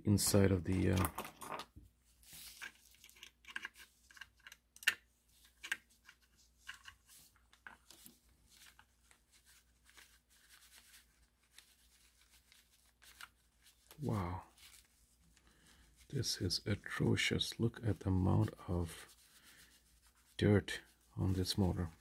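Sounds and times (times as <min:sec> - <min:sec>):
small clicks and taps: 0:02.6 - 0:08.2.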